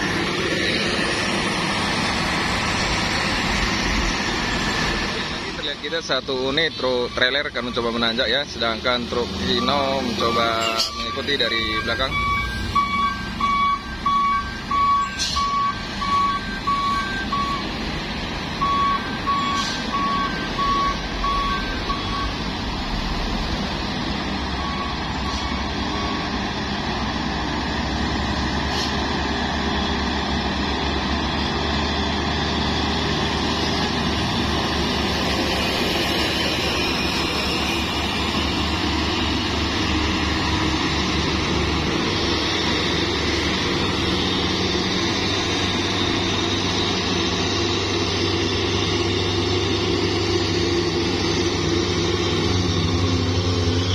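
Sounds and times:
truck diesel engines under load: 0.0s - 53.9s
electronic warning beeper: 9.4s - 17.7s, 18.6s - 22.4s.

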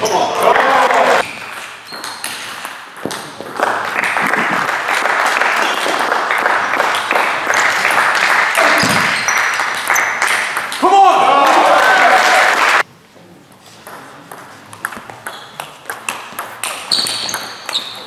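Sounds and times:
spectators applauding: 3.6s - 12.8s.

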